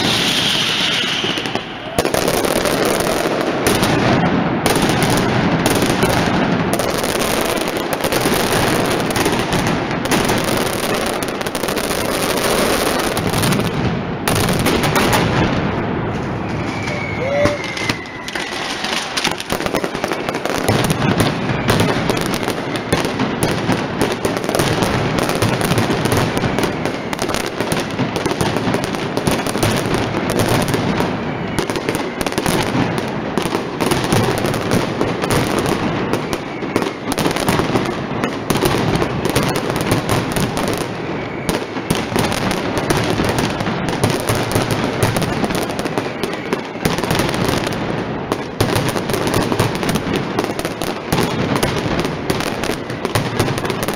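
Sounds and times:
faint rising whistle: 0.0s - 2.0s, 16.2s - 19.2s
firecracker barrage crackling: 0.0s - 53.9s.

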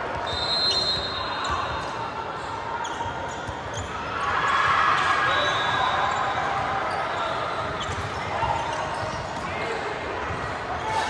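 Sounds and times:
voices in echoing hall: 0.0s - 11.0s
high whistle tone: 0.3s - 1.4s.

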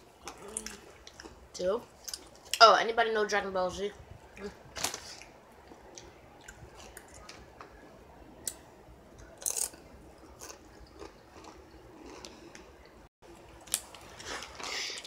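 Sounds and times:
potato chips being chewed: 9.2s - 15.0s.

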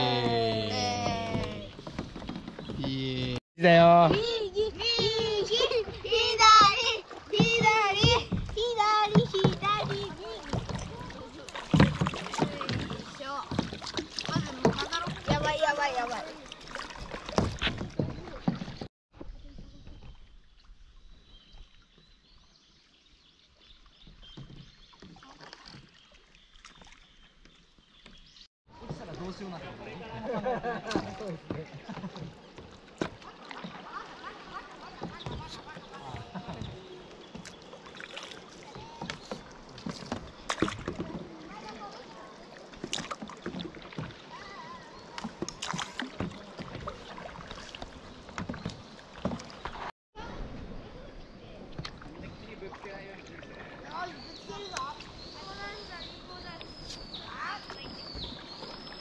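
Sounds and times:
paddle strokes in water: 0.0s - 3.4s, 4.0s - 22.2s, 22.9s - 59.0s.

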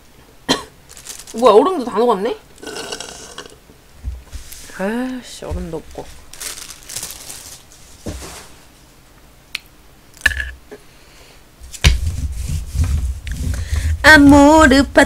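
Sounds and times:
food packaging rustling: 0.8s - 1.9s, 4.3s - 8.9s
packaging bumping: 0.9s - 1.4s, 5.6s - 8.2s.

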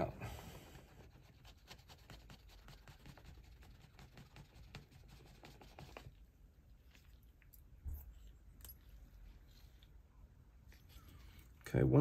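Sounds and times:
rapid clicking and scratching: 1.0s - 6.2s.

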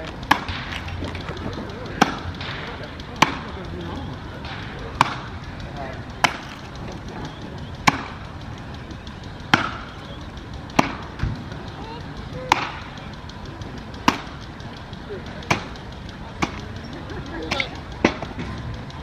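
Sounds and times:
axe chopping wood: 6.2s - 6.7s, 10.8s - 11.4s.

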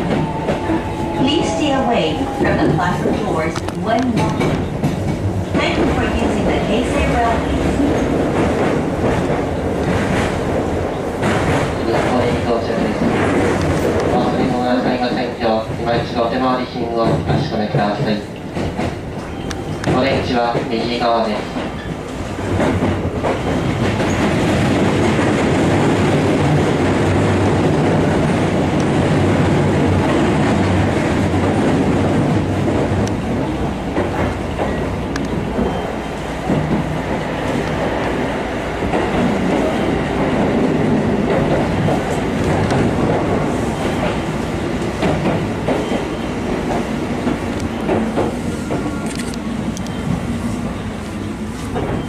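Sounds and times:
rail-joint clicks: 0.0s - 15.0s, 15.6s - 27.2s, 30.0s - 38.2s, 38.8s - 52.0s
train wheels rumbling on rail: 0.0s - 52.0s.

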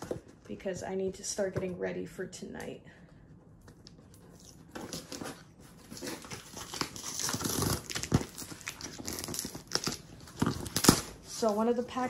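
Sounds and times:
packaging crinkling and tearing: 4.1s - 11.4s.

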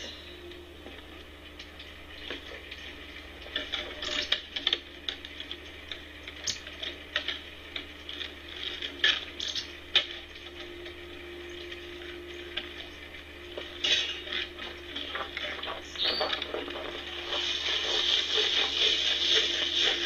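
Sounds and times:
steady low hum: 0.0s - 20.0s.

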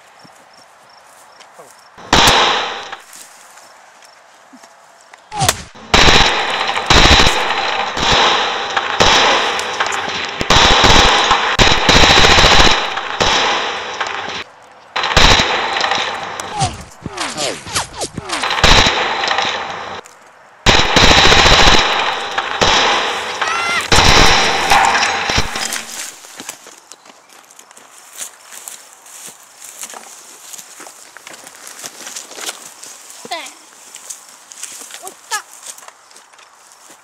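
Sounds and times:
automatic gunfire bursts: 5.7s - 14.4s, 15.0s - 17.6s, 18.2s - 20.0s, 20.7s - 26.2s.

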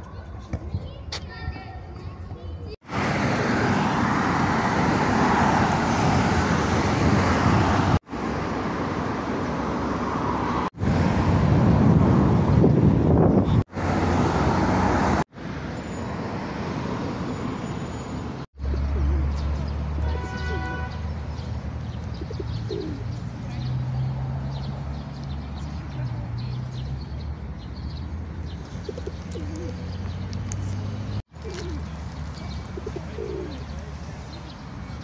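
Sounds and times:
low hum of road traffic: 0.0s - 35.0s
pigeons cooing: 18.7s - 19.4s, 22.2s - 23.1s, 28.8s - 30.0s, 31.3s - 32.0s, 32.6s - 33.8s
small birds chirping: 20.5s - 35.0s.

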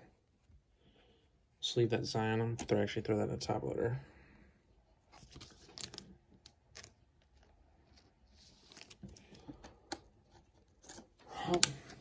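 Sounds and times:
soft plastic rustling: 4.9s - 10.8s.

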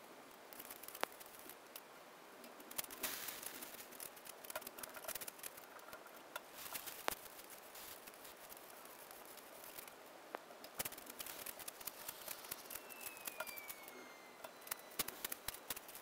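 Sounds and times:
gritty rush of stones: 2.7s - 5.8s, 10.8s - 16.0s.

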